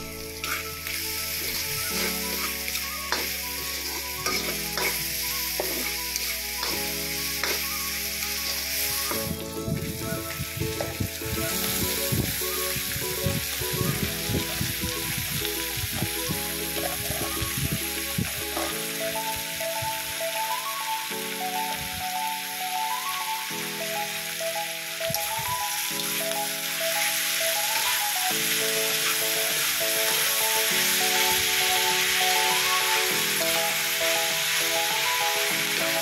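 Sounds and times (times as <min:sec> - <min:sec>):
spatula scraping and stirring: 0:00.0 - 0:09.4
food sizzling in a wok: 0:00.0 - 0:36.0.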